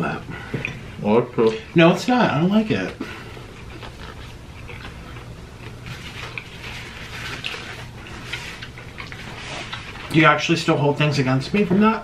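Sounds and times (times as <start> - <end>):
low steady hum: 0.0 - 12.0
person chewing: 2.9 - 10.2.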